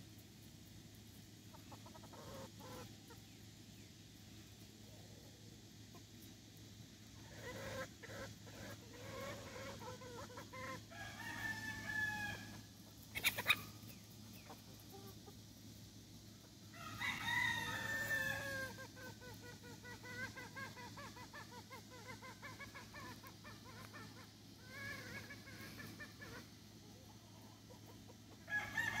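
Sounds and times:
hens clucking: 0:01.1 - 0:29.0
roosters crowing: 0:07.2 - 0:15.4, 0:16.5 - 0:29.0.

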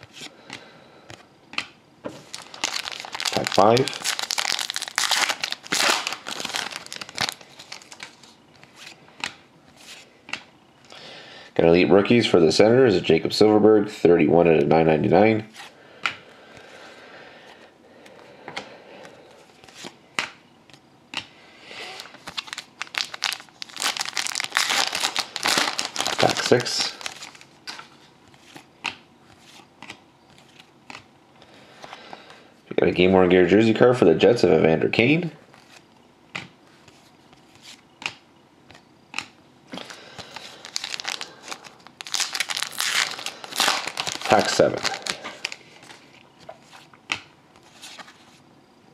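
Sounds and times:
foil card pack crinkling: 0:02.2 - 0:09.0, 0:21.9 - 0:27.8, 0:39.7 - 0:46.9.

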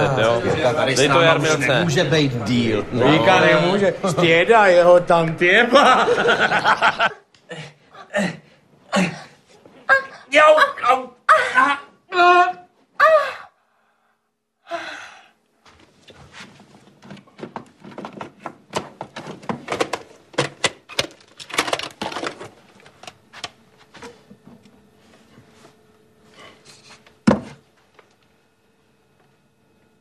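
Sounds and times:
clattering and knocking: 0:17.0 - 0:22.5.

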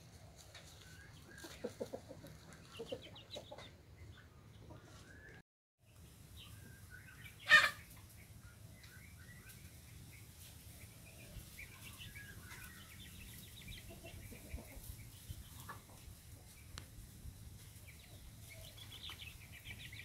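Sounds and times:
chickens clucking: 0:00.0 - 0:05.4, 0:06.4 - 0:20.0
chicken squawk: 0:07.3 - 0:07.9.

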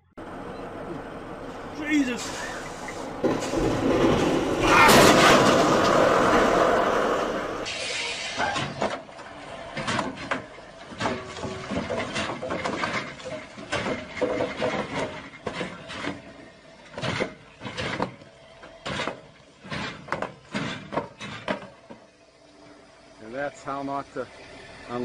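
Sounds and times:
concrete pipes crashing: 0:03.2 - 0:07.7, 0:09.7 - 0:18.2, 0:18.8 - 0:22.1.

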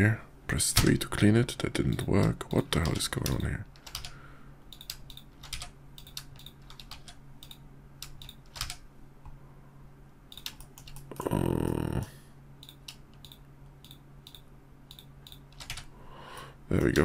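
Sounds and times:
keyboard and mouse clicking: 0:01.8 - 0:08.8, 0:10.3 - 0:11.2, 0:12.6 - 0:15.9
short low vocal sound: 0:11.1 - 0:12.3.

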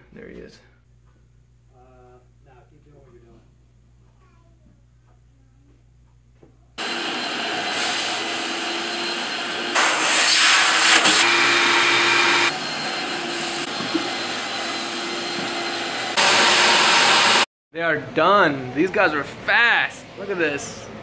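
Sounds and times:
wet vacuum motor whine: 0:06.8 - 0:17.4.

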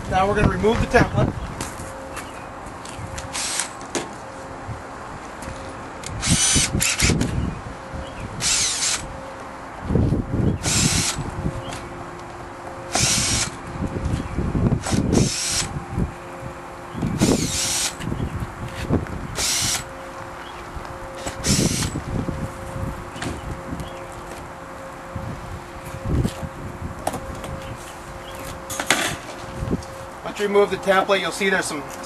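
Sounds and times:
cordless drill whirring: 0:03.2 - 0:03.8, 0:06.0 - 0:07.4, 0:08.4 - 0:09.1, 0:10.6 - 0:11.2, 0:12.9 - 0:13.6, 0:14.8 - 0:15.8, 0:17.1 - 0:18.1, 0:19.4 - 0:19.9, 0:21.2 - 0:22.0.

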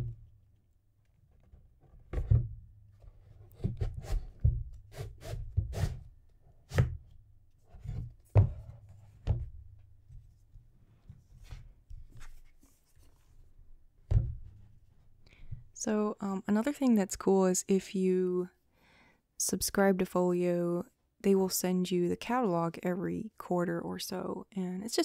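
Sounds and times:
books knocking on tabletop: 0:08.3 - 0:09.7.

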